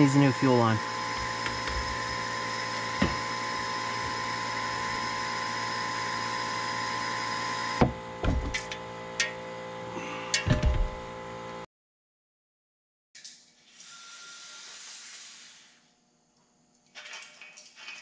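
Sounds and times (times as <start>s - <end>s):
vacuum extractor hissing and humming: 0.0s - 11.6s.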